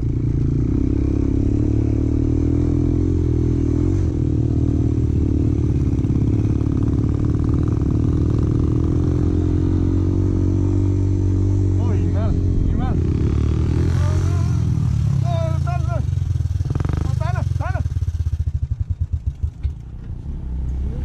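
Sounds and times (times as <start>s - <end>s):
motorcycle engine running: 0.0s - 21.0s
clatter: 18.4s - 20.2s.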